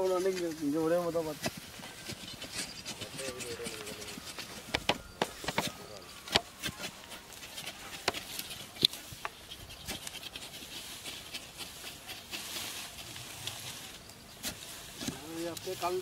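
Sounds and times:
scratching and rustling in soil: 0.0s - 16.0s.

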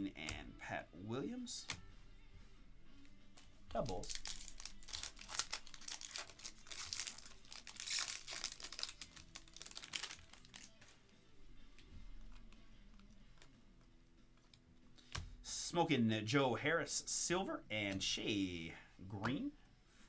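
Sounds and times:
foil wrapper tearing and crinkling: 3.8s - 10.7s.

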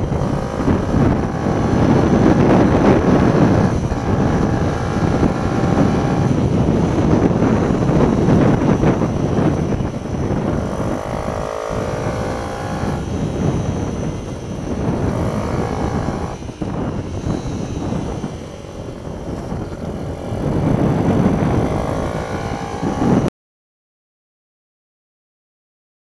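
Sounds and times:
mini-bike engine revving: 0.0s - 23.3s
wind rumble on microphone: 0.0s - 23.3s.

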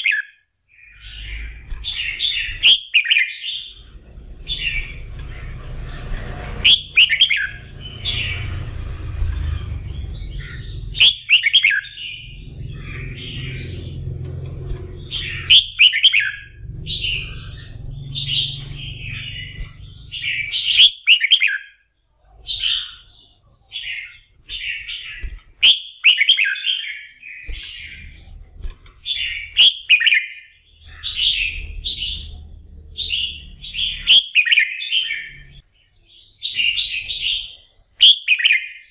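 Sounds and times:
low rumble: 3.6s - 20.8s, 27.5s - 29.6s, 30.7s - 34.1s
bird singing whistled phrases: 6.6s - 7.6s, 10.4s - 12.4s, 15.3s - 16.5s, 20.2s - 21.7s, 25.6s - 27.1s, 38.0s - 38.8s.

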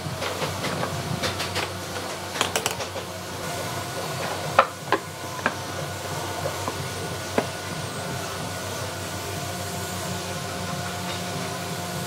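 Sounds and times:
wooden pieces knocking and clicking: 2.4s - 3.0s.

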